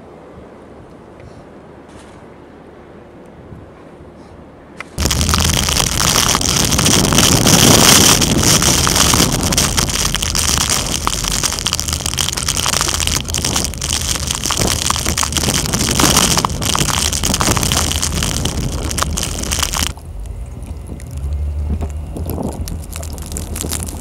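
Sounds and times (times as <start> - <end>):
vehicle engine rumble: 5.0 - 24.0
wind buffeting microphone: 5.0 - 24.0.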